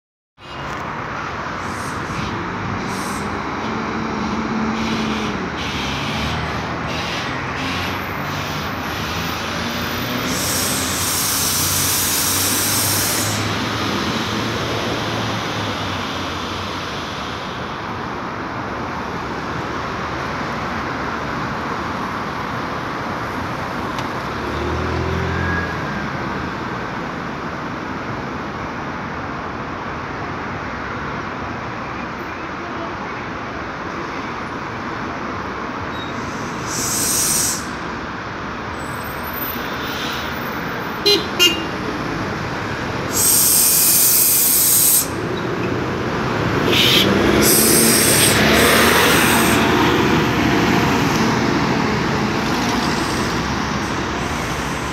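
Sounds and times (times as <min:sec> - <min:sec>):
bus engine idling: 0:00.4 - 0:18.7, 0:32.6 - 0:54.9
steady traffic: 0:00.4 - 0:54.9
air brake hiss: 0:10.1 - 0:13.6, 0:36.0 - 0:37.9, 0:43.1 - 0:45.3, 0:46.6 - 0:49.7, 0:52.8 - 0:54.9.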